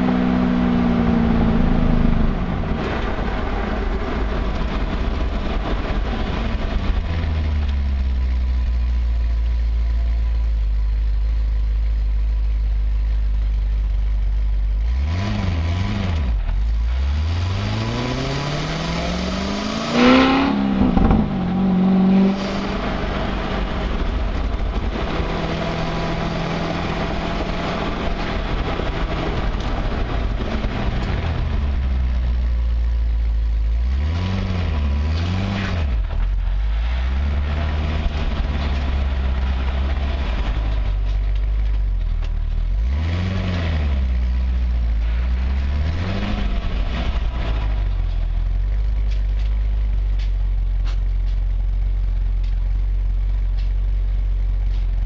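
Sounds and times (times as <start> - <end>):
car engine idling: 0.0 - 15.2, 20.5 - 34.0, 35.9 - 42.9, 44.0 - 55.0
road noise: 0.0 - 55.0.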